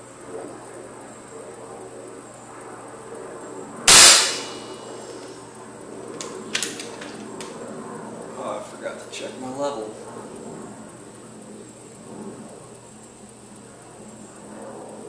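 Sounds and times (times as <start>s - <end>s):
air rifle firing: 3.9s - 4.9s.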